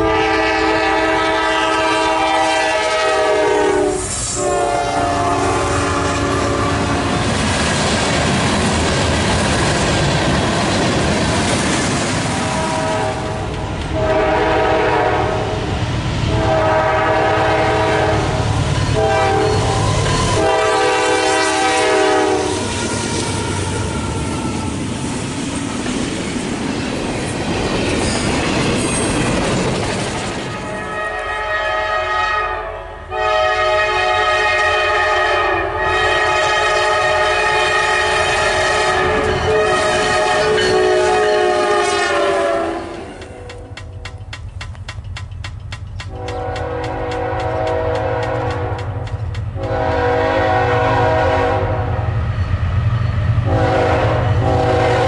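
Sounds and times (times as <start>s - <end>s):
locomotive air horn: 0.0s - 7.2s, 12.4s - 15.7s, 16.3s - 24.7s, 30.6s - 43.8s, 46.1s - 49.0s, 49.6s - 52.1s, 53.4s - 55.0s
train rumble and wheel clatter: 0.0s - 55.0s.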